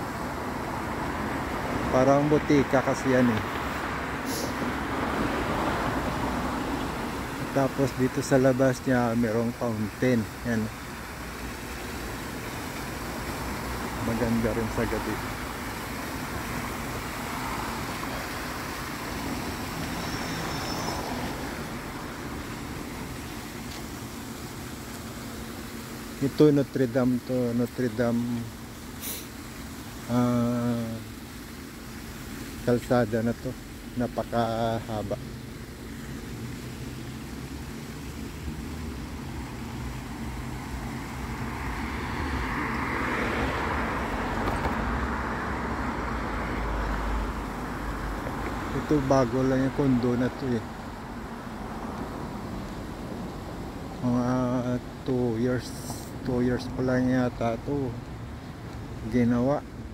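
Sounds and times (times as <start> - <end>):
fountain water splashing: 0.0 - 59.9
street traffic: 0.0 - 59.9
car driving past: 36.7 - 48.8.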